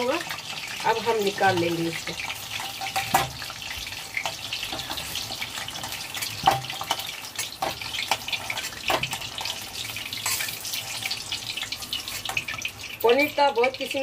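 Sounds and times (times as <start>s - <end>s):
onions sizzling in hot oil: 0.0s - 14.0s
metal spatula knocking on pan: 5.8s - 8.3s.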